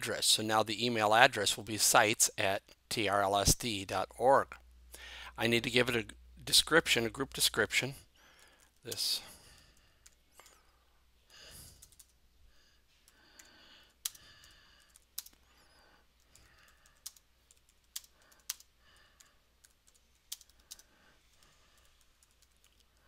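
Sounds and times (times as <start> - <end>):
typing on keyboard: 11.7 - 12.2, 13.1 - 15.4, 16.2 - 23.0.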